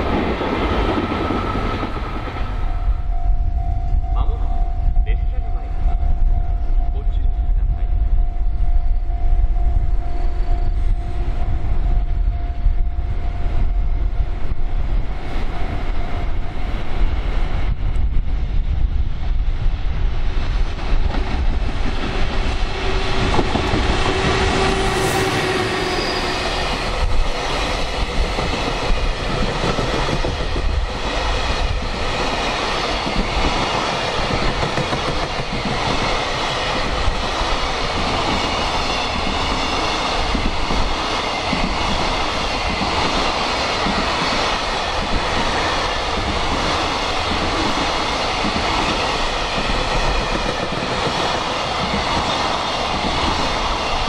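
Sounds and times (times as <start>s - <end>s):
freight train rumble: 0.0s - 54.0s
wind buffeting microphone: 0.0s - 54.0s
train wheels clacking over rail joints: 32.1s - 54.0s.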